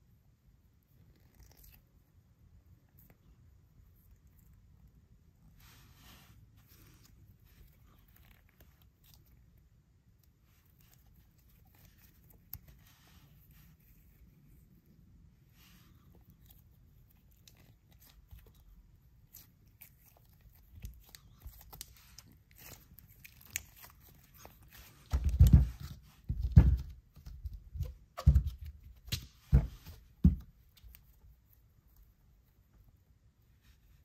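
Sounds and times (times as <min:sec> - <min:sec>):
dull rubber squishes: 0:15.6 - 0:32.1.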